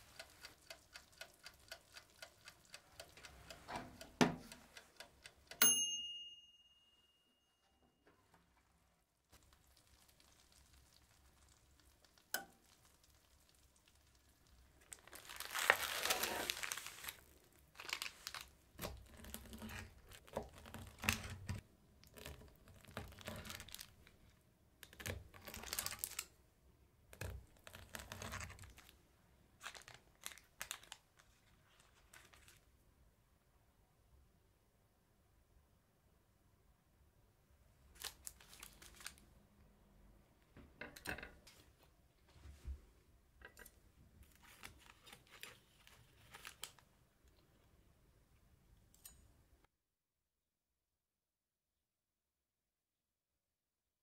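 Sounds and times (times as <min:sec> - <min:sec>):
knife crackling through biscuit: 0:09.4 - 0:24.2, 0:27.1 - 0:28.9.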